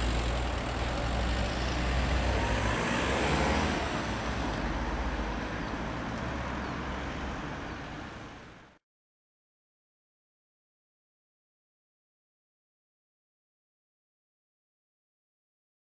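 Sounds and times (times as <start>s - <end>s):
cars driving past: 0.0s - 8.8s.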